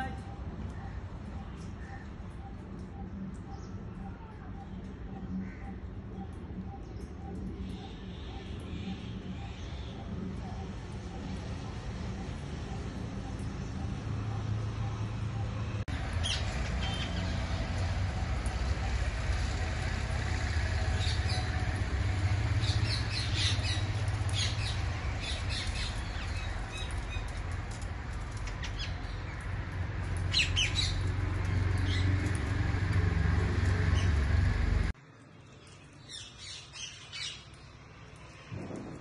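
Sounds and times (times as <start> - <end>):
steady low rumble: 38.0 - 39.0.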